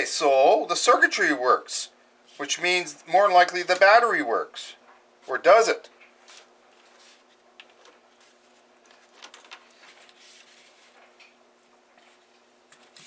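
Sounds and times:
faint steady hum: 0.0 - 13.0
plastic handling clicks and rustles: 7.6 - 10.2.

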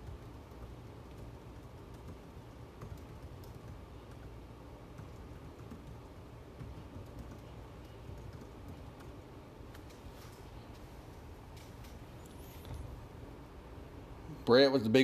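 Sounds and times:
keyboard typing clicks: 0.0 - 10.1
low background hum: 0.0 - 15.0.

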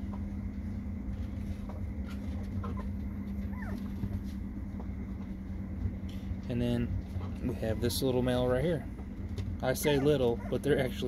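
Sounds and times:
low hum: 0.0 - 11.0
puppies whimpering: 2.6 - 4.2, 7.4 - 8.5, 9.6 - 11.0.

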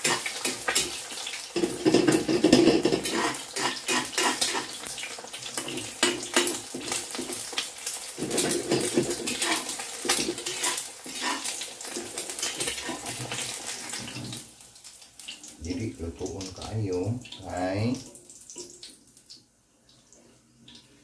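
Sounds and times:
metal spatula scraping a wok: 0.0 - 4.9, 8.1 - 14.4
egg sizzling: 0.0 - 21.0.

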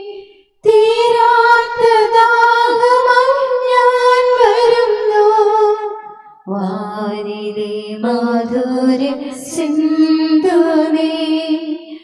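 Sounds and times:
woman singing a hymn: 0.0 - 5.9, 6.5 - 12.0.

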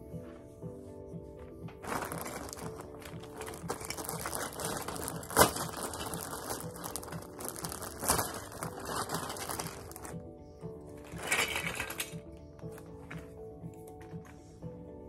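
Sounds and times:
plastic bag crinkling: 1.8 - 10.2, 11.0 - 13.2.

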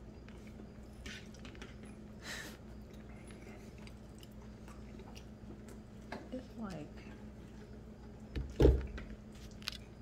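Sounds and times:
steady low hum: 0.0 - 10.0
soft chewing: 0.2 - 6.4.

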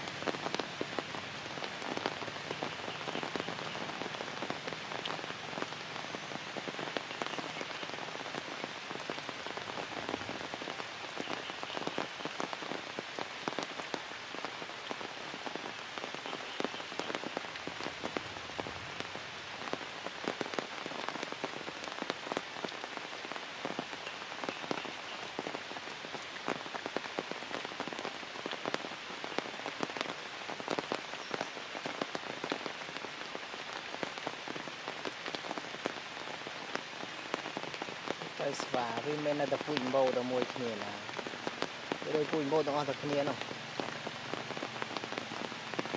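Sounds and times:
rain falling through foliage: 0.0 - 45.9
raindrops ticking close by: 0.0 - 45.9.

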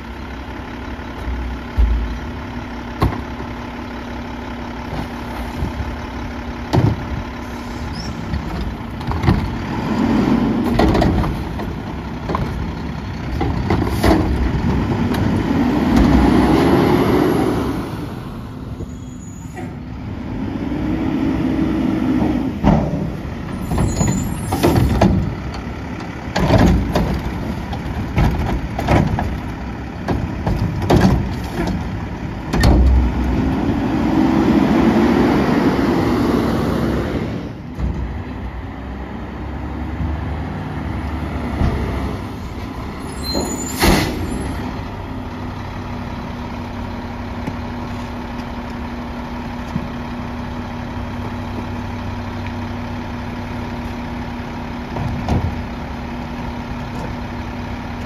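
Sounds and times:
garbage truck engine revving: 0.3 - 58.0.

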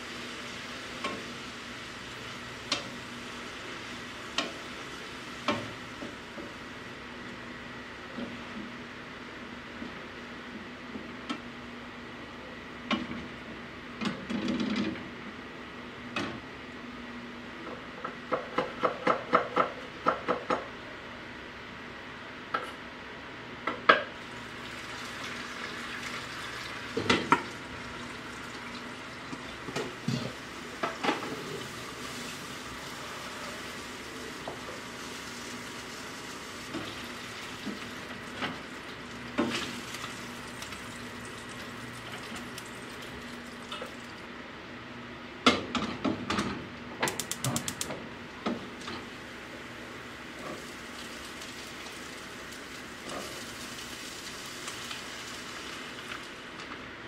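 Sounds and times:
fish sizzling in oil: 31.6 - 43.1, 50.4 - 56.4.

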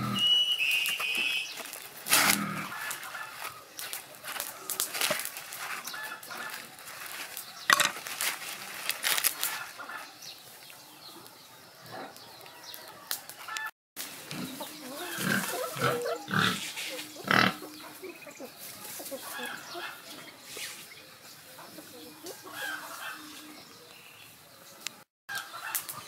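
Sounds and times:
corn husks rustling and tearing: 0.4 - 10.1
poultry calling: 0.9 - 3.7, 4.4 - 7.2, 9.3 - 10.3, 11.1 - 20.4, 21.6 - 24.0.

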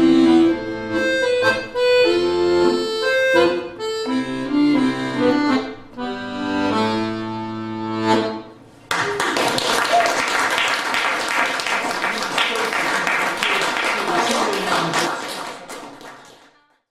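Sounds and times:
accordion chord: 0.0 - 8.8
audience applause: 8.9 - 16.7.

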